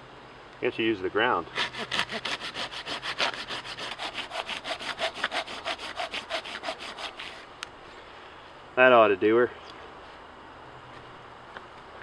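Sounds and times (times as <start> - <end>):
hand saw cutting log: 1.5 - 7.5.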